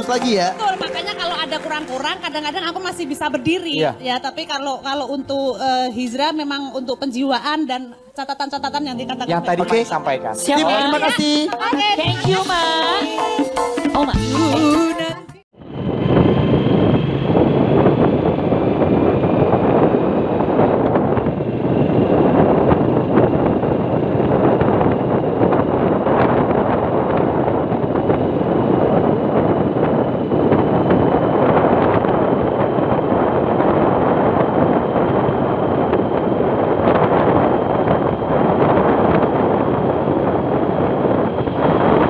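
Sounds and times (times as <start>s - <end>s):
road and vehicle noise: 15.6s - 42.0s
wind buffeting the microphone: 15.6s - 42.0s.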